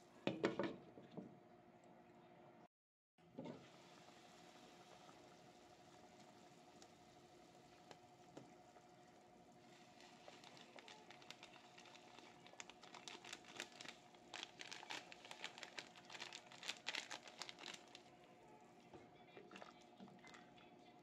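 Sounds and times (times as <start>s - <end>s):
pepper mill grinding: 9.8s - 18.0s.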